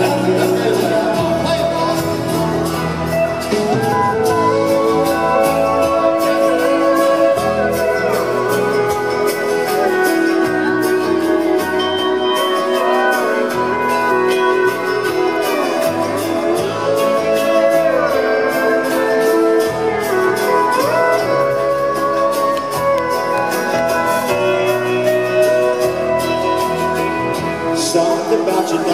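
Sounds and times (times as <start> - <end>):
live band playing instrumental: 0.0 - 28.9.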